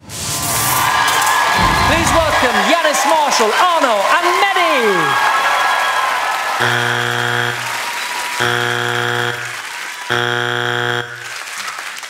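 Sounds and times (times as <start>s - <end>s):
audience applause: 0.6s - 12.0s
low buzzer blasts: 6.6s - 11.5s.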